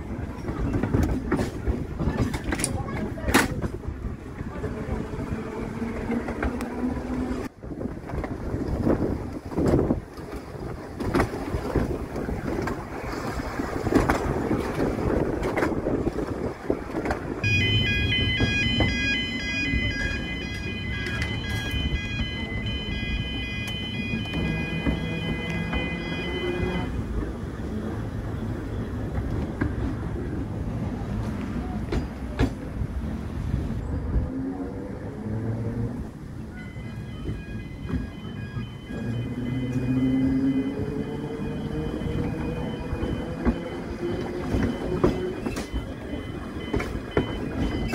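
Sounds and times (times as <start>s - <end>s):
tram running on track: 0.0s - 47.9s
wheel-on-rail noise: 0.0s - 47.9s
wind: 0.0s - 47.9s
high electronic beeping: 17.4s - 26.9s, 36.6s - 47.9s.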